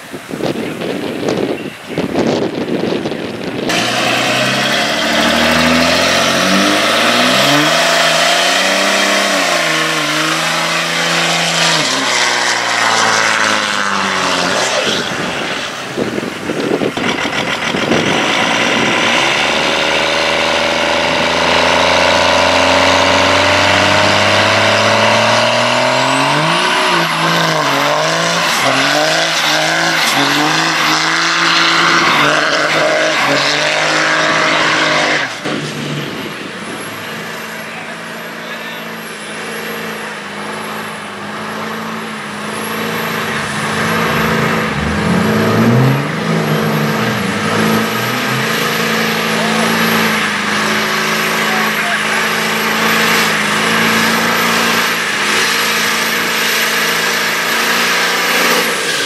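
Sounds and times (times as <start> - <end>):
diesel truck engines revving: 0.0 - 59.0
tyres spinning on pavement: 13.8 - 38.4.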